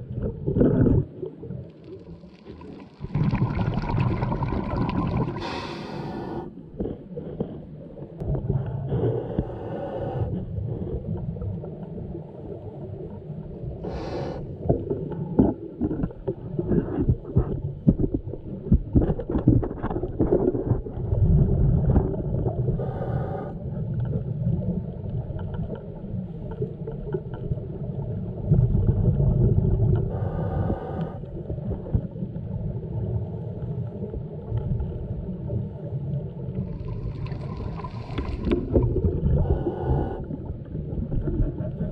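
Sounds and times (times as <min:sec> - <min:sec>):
low underwater rumble: 0:00.0 - 0:41.9
scuba breathing hiss: 0:05.4 - 0:06.5, 0:08.9 - 0:10.4, 0:13.8 - 0:14.6, 0:22.8 - 0:23.6, 0:30.1 - 0:31.3, 0:39.4 - 0:40.3.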